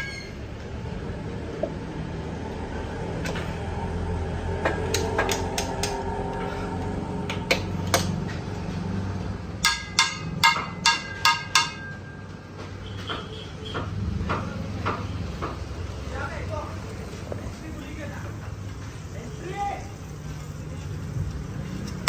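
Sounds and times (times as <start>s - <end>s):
metal spatula striking pan: 9.6s - 12.2s.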